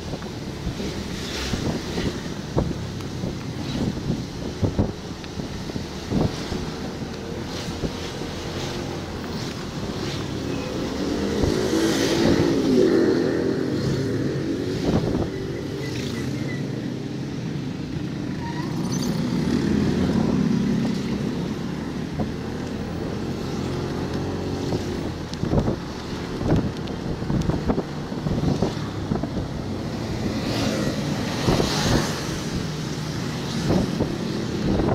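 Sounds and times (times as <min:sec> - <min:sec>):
wind buffeting microphone: 0:00.0 - 0:15.8, 0:19.5 - 0:34.9.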